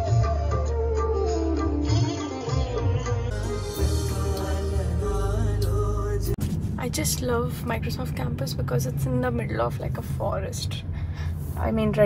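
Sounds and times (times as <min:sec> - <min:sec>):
instrumental music with pulsing beat: 0:00.0 - 0:06.2.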